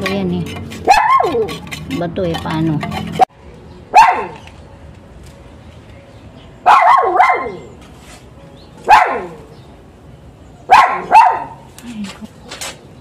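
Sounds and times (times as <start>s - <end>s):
dog barking: 0.9s - 1.5s, 4.0s - 4.4s, 6.7s - 7.7s, 8.9s - 9.4s, 10.7s - 11.6s.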